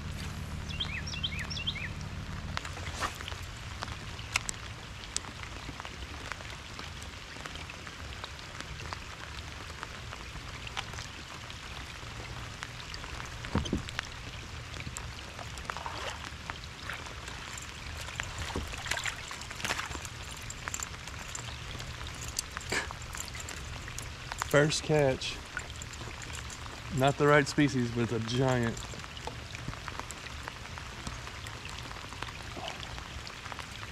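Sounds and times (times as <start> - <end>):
heavy rain on water: 0.0 - 33.9
raindrop taps: 12.6 - 14.2.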